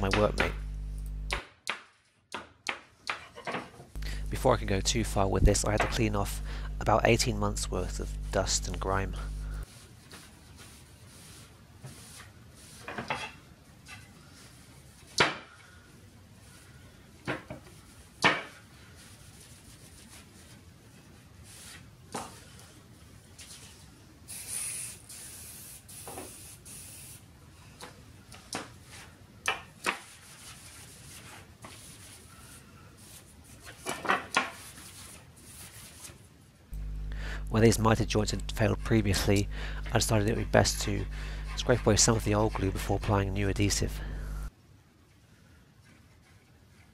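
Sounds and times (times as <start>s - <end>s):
cloth wiping wooden boards: 9.7s - 12.9s, 39.9s - 44.1s
aerosol can spraying: 24.3s - 27.2s.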